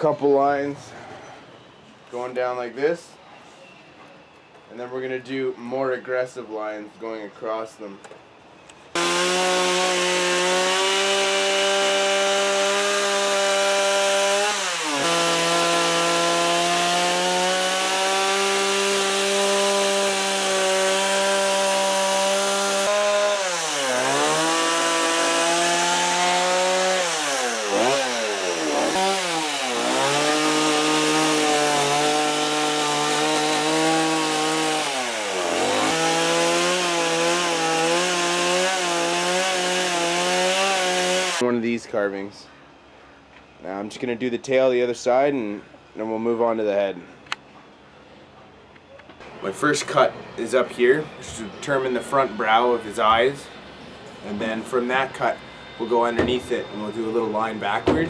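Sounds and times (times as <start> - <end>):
chainsaw cutting wood: 8.9 - 41.4.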